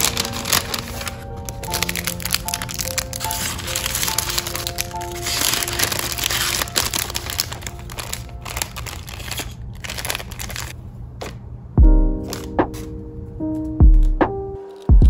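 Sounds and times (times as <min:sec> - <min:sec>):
soft background music: 0:00.0 - 0:10.7, 0:11.8 - 0:15.0
paper bag crinkling: 0:00.0 - 0:10.8.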